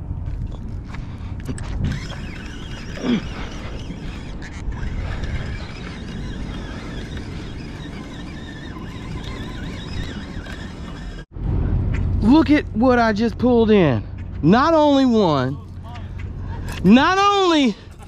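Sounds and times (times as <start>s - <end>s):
fishing reel cranking: 1.6s - 11.3s
low rumble: 11.2s - 14.7s.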